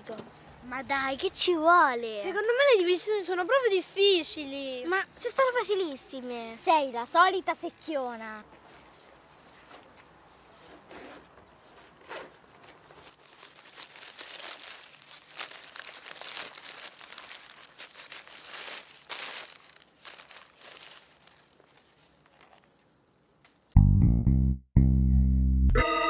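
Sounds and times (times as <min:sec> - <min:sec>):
paper bag crinkling: 0:12.5 - 0:23.0.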